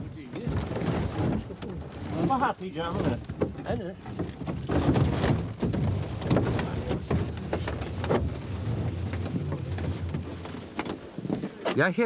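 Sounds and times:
boat scraping and knocking on grass: 0:00.0 - 0:11.8
wind buffeting microphone: 0:04.2 - 0:11.6.

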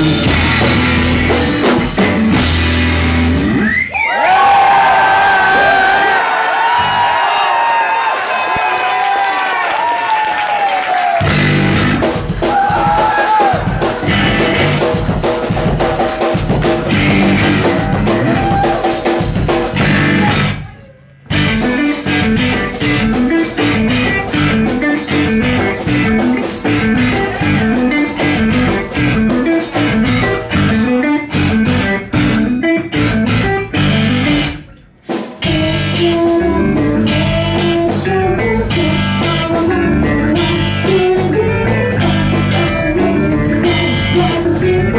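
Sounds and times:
electric bass: 0:00.0 - 0:03.8, 0:11.2 - 0:13.0, 0:13.6 - 0:44.9
electric guitars: 0:00.0 - 0:03.9, 0:11.2 - 0:44.9
drum kit: 0:00.0 - 0:04.6, 0:09.8 - 0:44.9.

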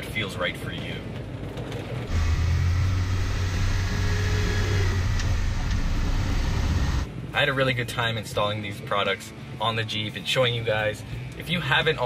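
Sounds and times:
road and tyre noise: 0:00.0 - 0:10.4
car engine drone: 0:02.0 - 0:07.4.

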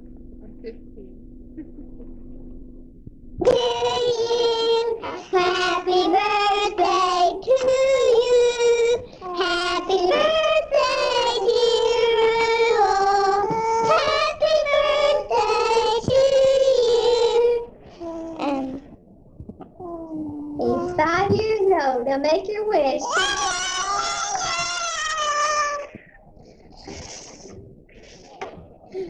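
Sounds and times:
girl singing into microphone: 0:03.4 - 0:17.7
quiet voice: 0:19.8 - 0:21.4.

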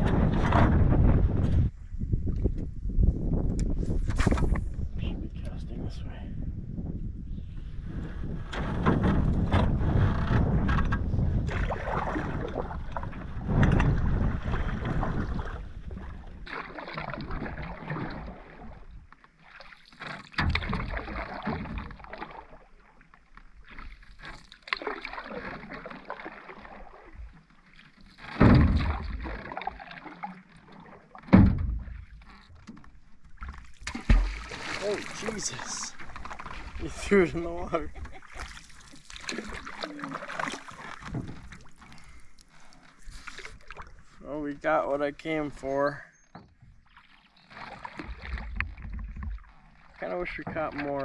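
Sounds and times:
paddle strokes splashing in water: 0:07.8 - 0:44.2, 0:46.6 - 0:51.0.

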